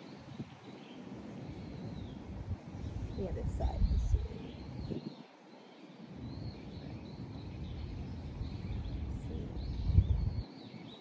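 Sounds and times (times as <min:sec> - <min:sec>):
birds chirping faintly: 0:00.0 - 0:11.0.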